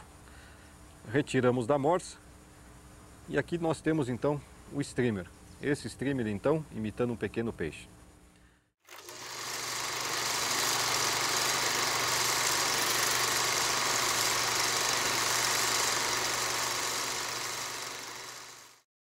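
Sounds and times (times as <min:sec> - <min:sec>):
film projector whirring: 0:08.9 - 0:18.9.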